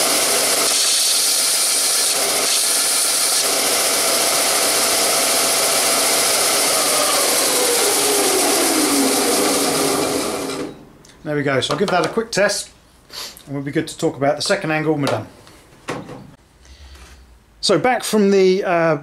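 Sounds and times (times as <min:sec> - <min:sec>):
belt sander running: 0:00.0 - 0:10.8
drill bit grinding on belt: 0:00.0 - 0:10.8.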